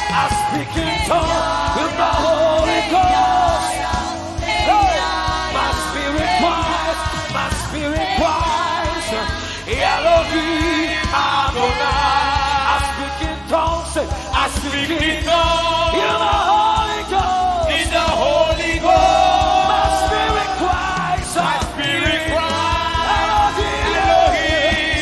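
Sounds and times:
backing vocalists singing: 0.0 - 25.0
instrumental accompaniment with bass: 0.0 - 25.0
lead singer: 0.0 - 25.0.

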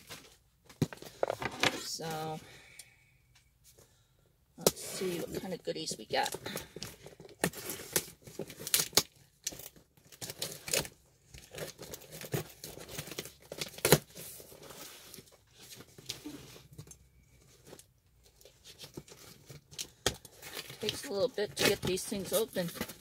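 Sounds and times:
cardboard rustling: 0.0 - 2.0
tape tearing: 7.2 - 16.6.

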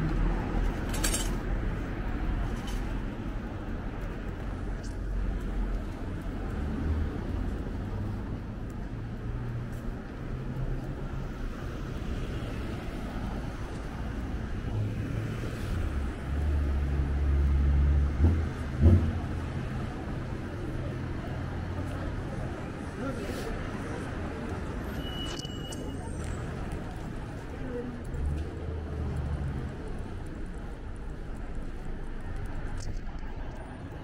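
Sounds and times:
vehicle engines passing: 0.0 - 34.0.

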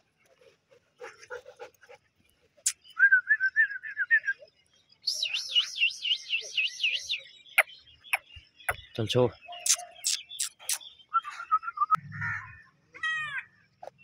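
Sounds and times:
bird whistling call: 5.1 - 7.2.

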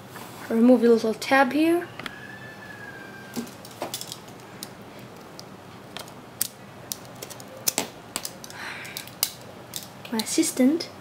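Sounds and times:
plastic shrink-wrap crinkling: 3.4 - 9.9.

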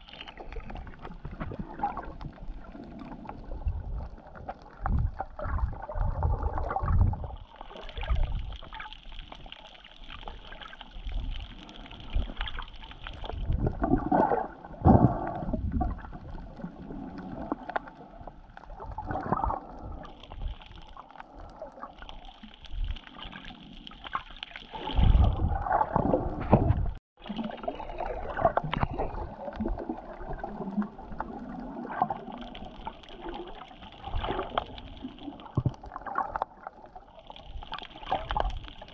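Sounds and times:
muffled underwater sloshing: 0.0 - 38.9
low underwater thumps: 25.0 - 27.0.

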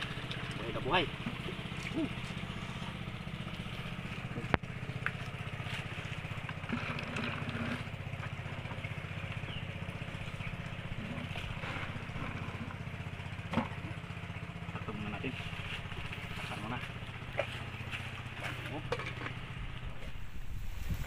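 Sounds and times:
small engine idling: 0.0 - 21.0.

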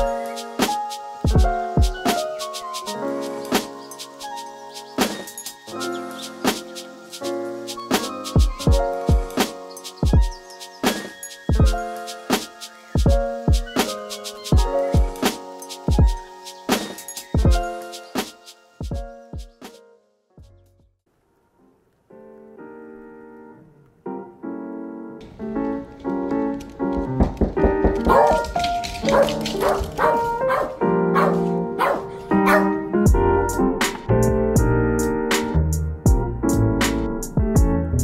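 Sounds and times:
keyboard chords over a beat: 0.0 - 20.8, 22.4 - 38.0
deep bass thumps: 33.1 - 35.0, 36.1 - 38.0.

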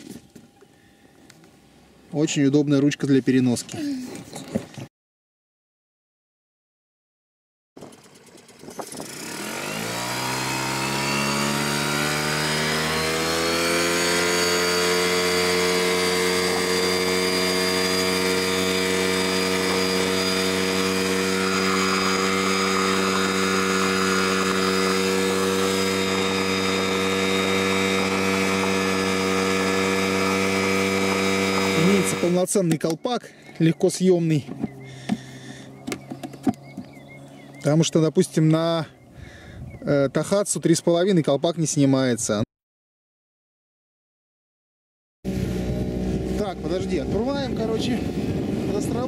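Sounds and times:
outboard motor running: 7.8 - 39.6, 45.3 - 49.0.

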